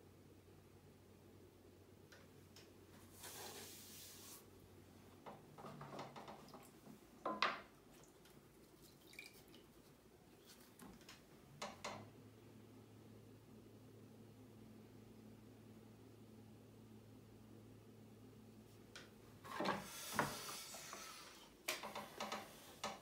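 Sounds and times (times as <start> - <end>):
sponge rubbing on wet clay: 3.1 - 4.5
water splashing in a bucket: 7.9 - 9.9.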